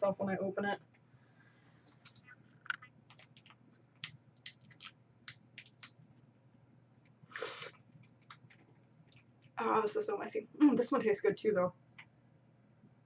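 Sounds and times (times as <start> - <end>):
plastic cup crinkling: 1.9 - 6.1.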